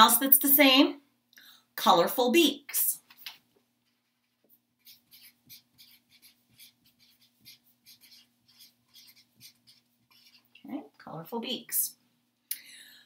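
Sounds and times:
marker scratching on paper: 4.8 - 10.5.

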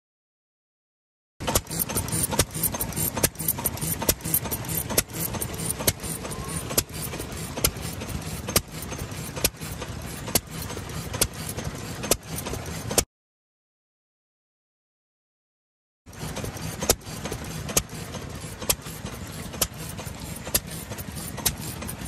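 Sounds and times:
engine low chuffing: 1.4 - 13.0, 16.1 - 22.0
stationary engine exhaust bangs: 1.4 - 13.0.

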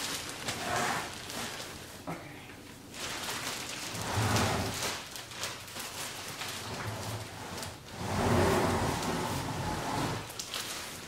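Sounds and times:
plastic wrap rustling: 0.0 - 11.0
couch dragging and scraping: 0.6 - 1.2, 3.9 - 4.8, 6.6 - 10.3.

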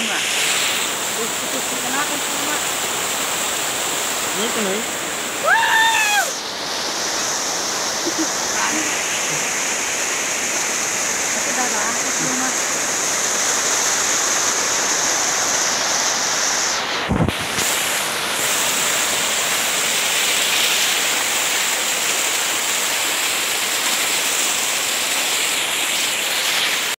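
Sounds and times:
waterfall rushing over rocks: 0.0 - 27.0.

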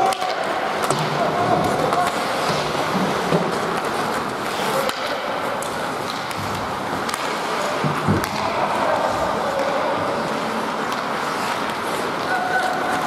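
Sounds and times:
arena noise: 0.0 - 13.0
hockey sticks and puck clacking: 0.0 - 13.0
skates on ice: 0.0 - 13.0.

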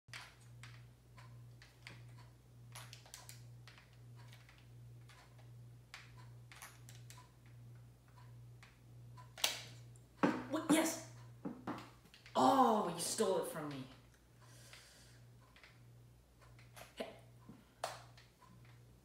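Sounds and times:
low electrical hum: 0.1 - 19.0.

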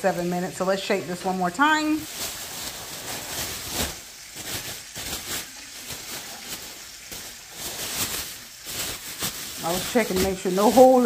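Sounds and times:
plastic bag rustling: 0.0 - 11.0.

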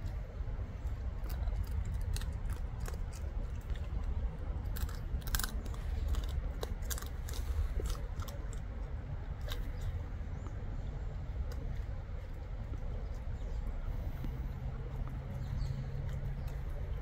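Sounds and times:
steady low rumble: 0.0 - 17.0
crab shells crunching: 1.2 - 8.8.

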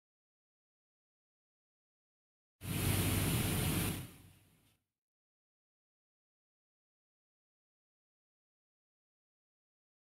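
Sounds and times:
steady rushing noise: 2.6 - 4.7.

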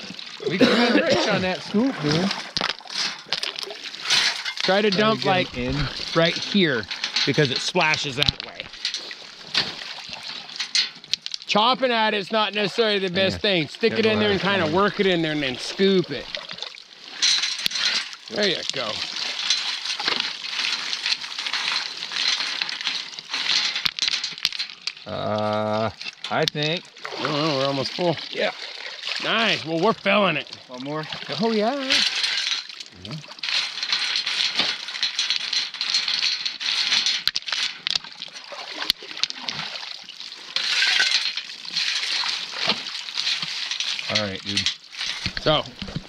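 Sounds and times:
stones crunching and clinking: 0.0 - 11.6, 13.2 - 26.8, 31.3 - 46.0
water splashing and sloshing: 0.0 - 46.0
shovel scraping wet gravel: 0.9 - 11.5, 12.8 - 16.3, 17.1 - 24.9, 31.3 - 39.7, 40.4 - 46.0
shovel scooping gravel: 2.1 - 10.9, 17.2 - 24.7
rain hissing: 12.6 - 16.3.

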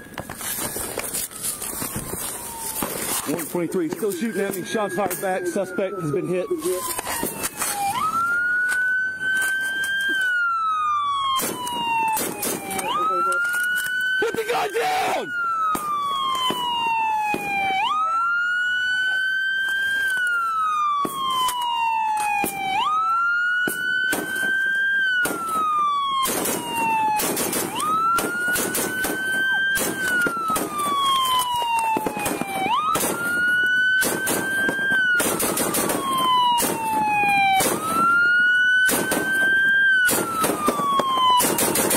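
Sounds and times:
crackles and knocks: 0.0 - 4.6
police siren wailing: 0.0 - 41.9.

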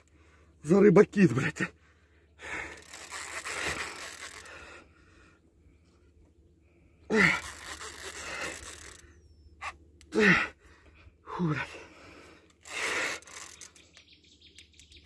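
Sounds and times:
man breathing heavily: 0.0 - 0.6, 1.7 - 13.6
man grunting: 10.1 - 10.6.

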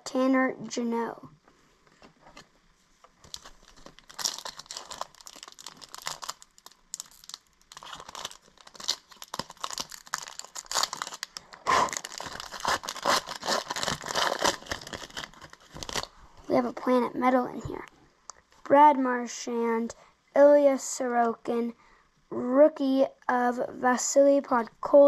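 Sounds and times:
wrapper tearing and crinkling: 3.2 - 16.1.

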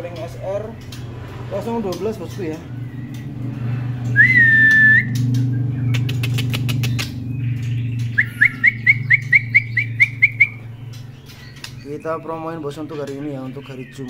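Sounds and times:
steady low hum: 0.0 - 13.6
bird whistling song: 2.6 - 14.0
bird hopping clicks: 4.0 - 11.9.

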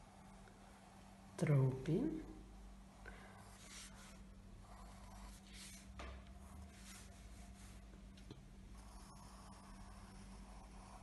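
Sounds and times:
pencil scratching on paper: 3.4 - 7.8, 8.8 - 11.0.

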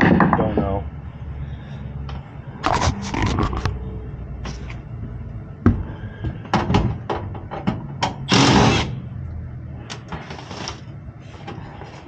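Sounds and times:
steady low hum: 0.0 - 12.0
tools knocking and rattling on metal: 6.5 - 8.2.

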